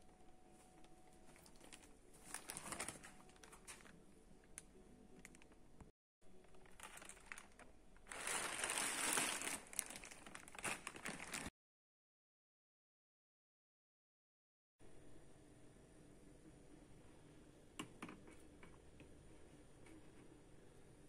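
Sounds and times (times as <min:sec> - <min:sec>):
plastic bag crinkling: 0:01.2 - 0:04.0, 0:06.4 - 0:11.5.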